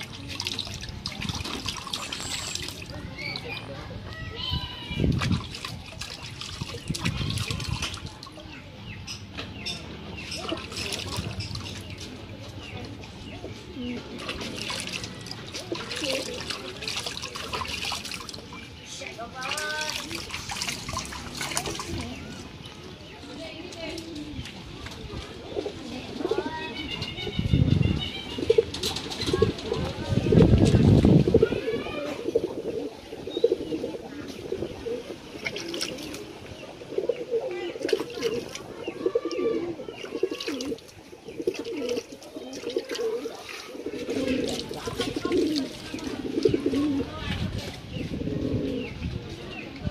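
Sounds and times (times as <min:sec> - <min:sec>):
water trickling into a bucket: 0:00.0 - 0:13.0, 0:14.1 - 0:27.3, 0:27.9 - 0:47.9
pigeons cooing: 0:12.6 - 0:17.8, 0:25.3 - 0:30.5, 0:31.1 - 0:49.7.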